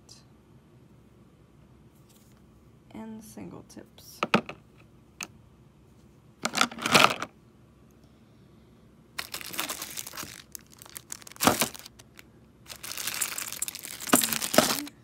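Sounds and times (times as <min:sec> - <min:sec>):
plastic packaging crinkling: 0:09.2 - 0:15.0.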